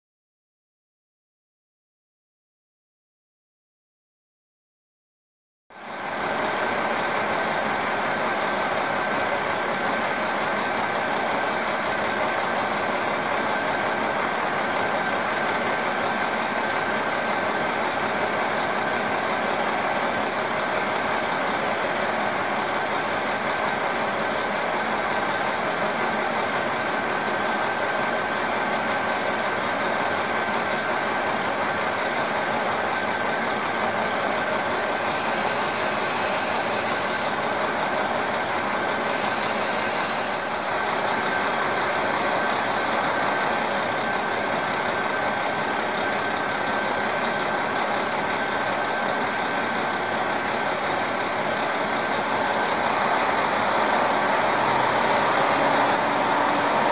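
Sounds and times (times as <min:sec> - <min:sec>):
diesel engine idling: 0:05.8 - 0:56.9
thin high whine: 0:35.0 - 0:37.5, 0:39.1 - 0:43.5.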